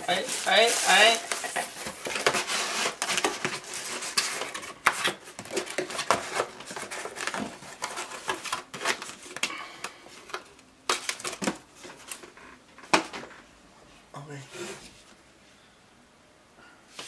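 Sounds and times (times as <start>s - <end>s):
cardboard rustling and scraping: 0.0s - 9.3s.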